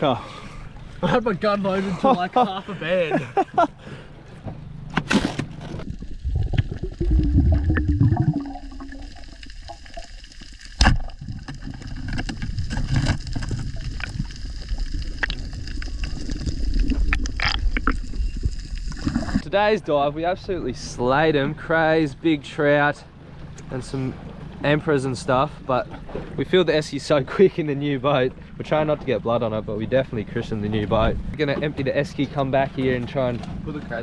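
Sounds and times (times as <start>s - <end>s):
water sloshing and gurgling: 0.0s - 2.3s, 3.4s - 34.0s.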